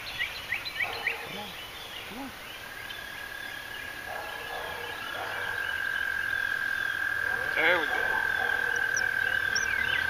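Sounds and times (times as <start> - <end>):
bird chirping: 0.0 - 10.0
frog trilling: 4.9 - 10.0.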